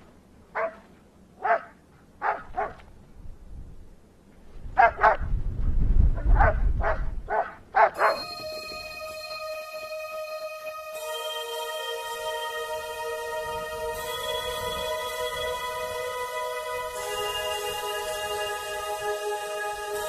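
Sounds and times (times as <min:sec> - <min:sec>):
dog barking: 0:00.6 - 0:00.8, 0:01.4 - 0:02.8, 0:04.8 - 0:05.2, 0:06.2 - 0:08.2.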